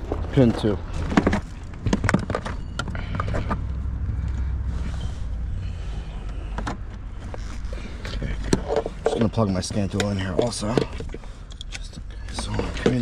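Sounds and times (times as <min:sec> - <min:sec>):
low hum: 0:00.0 - 0:09.1.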